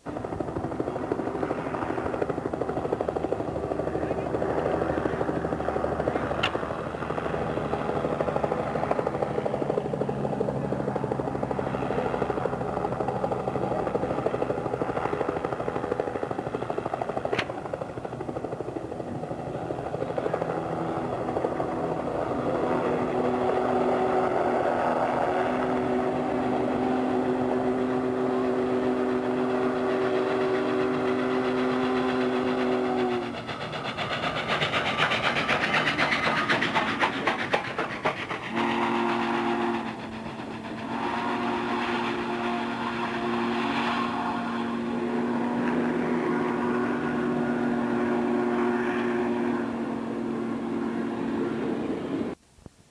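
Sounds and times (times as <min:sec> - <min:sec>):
steam locomotive rumble: 0:00.0 - 0:52.4
multi-note train whistle: 0:25.9 - 0:33.5, 0:38.4 - 0:51.8.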